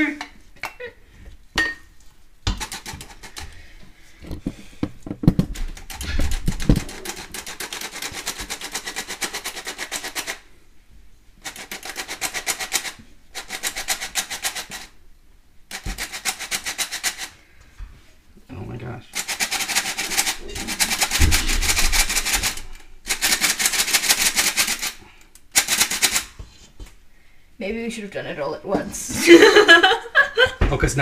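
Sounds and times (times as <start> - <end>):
knocks and clatters: 2.4 - 3.5, 4.2 - 10.4, 19.3 - 23.6.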